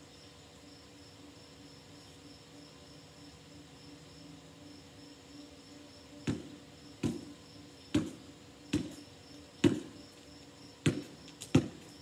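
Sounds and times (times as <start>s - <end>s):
basketball bouncing on hard ground: 6.2s - 10.0s, 10.8s - 12.0s.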